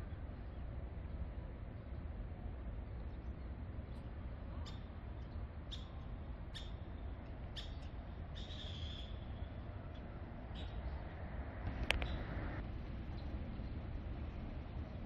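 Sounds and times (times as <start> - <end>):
low outdoor rumble: 0.0 - 15.0
small birds chirping: 2.8 - 11.1, 11.8 - 12.4.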